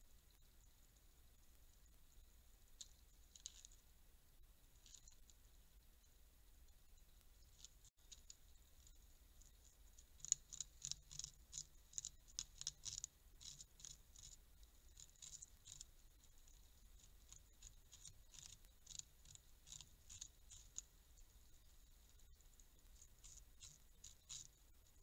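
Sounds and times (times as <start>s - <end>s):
beaver gnawing wood: 7.6s - 20.9s, 22.5s - 24.5s.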